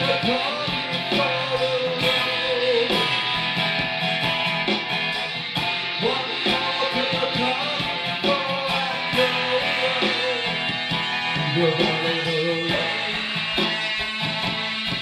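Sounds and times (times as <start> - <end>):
man singing: 0.0 - 3.4, 6.0 - 14.1
acoustic guitar strumming: 0.0 - 15.0.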